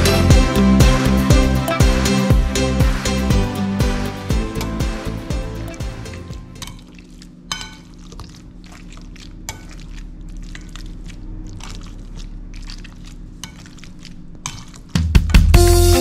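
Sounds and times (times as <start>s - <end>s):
steady low hum: 0.0s - 14.8s
wet squishing of mashing: 4.6s - 15.6s.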